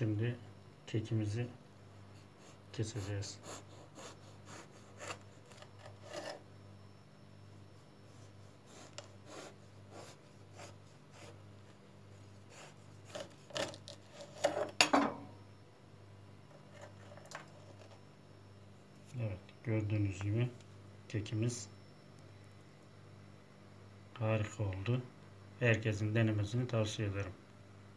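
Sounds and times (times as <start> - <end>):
knife sawing through cake: 2.2 - 6.4, 7.8 - 11.4, 12.1 - 14.3
knife scraping wooden board: 3.6 - 6.4, 12.5 - 14.7.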